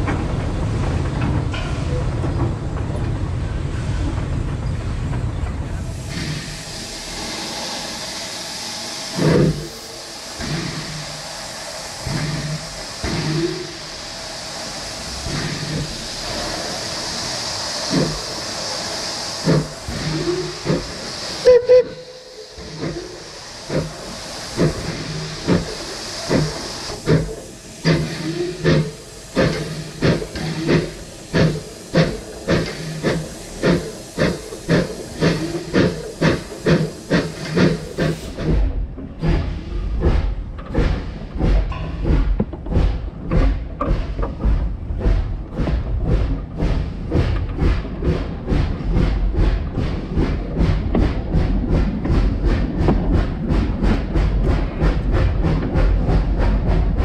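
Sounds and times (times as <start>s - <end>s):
steam locomotive hissing: 0.0s - 57.0s
locomotive exhaust chuffs: 5.0s - 57.0s
locomotive whistle blast: 21.4s - 22.4s.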